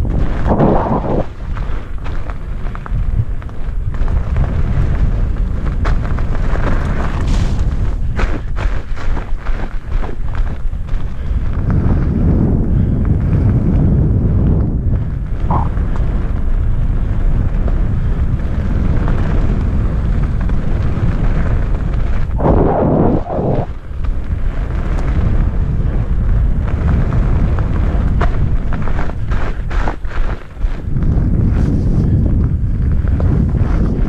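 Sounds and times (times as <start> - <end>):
wheels rolling over gravel: 0.0 - 34.0
wind buffeting microphone: 0.0 - 34.0.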